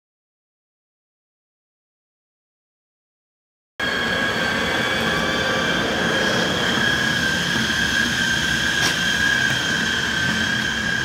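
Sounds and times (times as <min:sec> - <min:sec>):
electric locomotive whine: 0:03.8 - 0:11.0.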